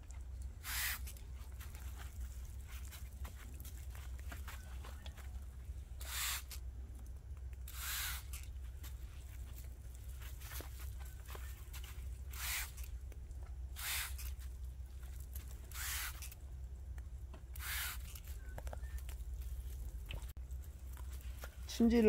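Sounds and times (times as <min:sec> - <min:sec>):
hand sprayer hissing: 0:00.6 - 0:01.2, 0:06.0 - 0:06.6, 0:07.7 - 0:08.4, 0:12.3 - 0:12.9, 0:13.8 - 0:14.4, 0:15.7 - 0:16.3, 0:17.6 - 0:18.2.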